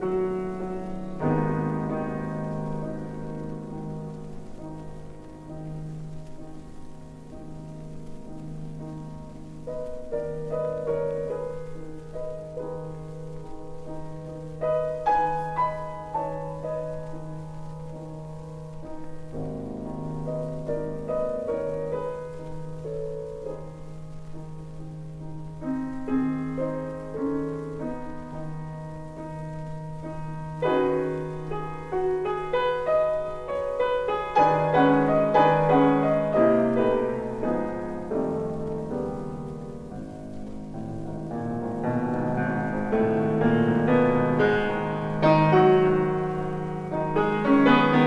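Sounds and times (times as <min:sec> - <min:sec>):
slow classical solo piano: 0:00.0 - 0:48.0.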